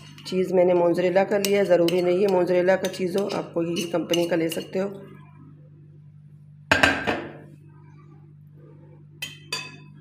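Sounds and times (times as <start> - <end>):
low steady hum: 0.0 - 10.0
metal spoon clinking glass bowl: 1.4 - 4.8, 9.2 - 9.9.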